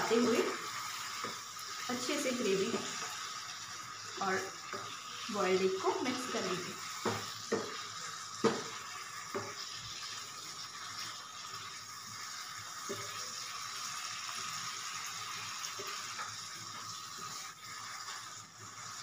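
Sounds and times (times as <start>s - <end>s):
gravy sizzling in a pan: 0.0s - 19.0s
metal spatula knocking on pan: 7.0s - 7.8s, 8.4s - 9.6s.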